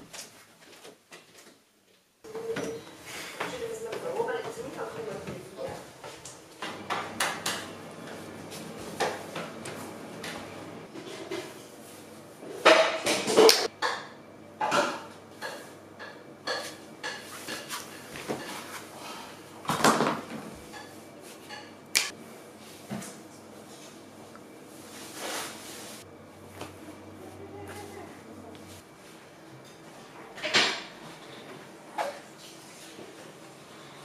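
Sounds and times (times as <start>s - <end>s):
footsteps on tiled floor: 3.2s - 6.4s.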